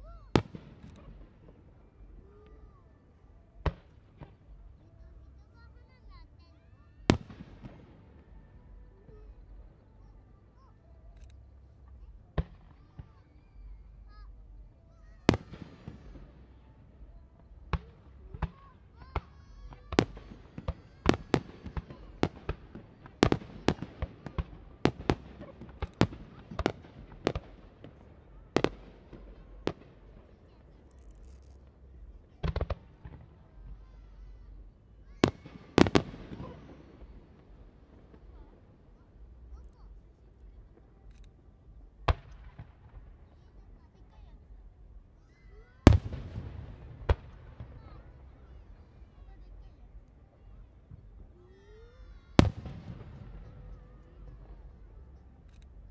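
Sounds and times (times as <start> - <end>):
faint firework pops: 0.3 - 2.7, 3.6 - 4.7, 7.1 - 8.4, 11.1 - 13.7, 15.0 - 43.8, 45.6 - 51.3, 52.3 - 55.9
firework shells bursting: 35.2 - 38.5.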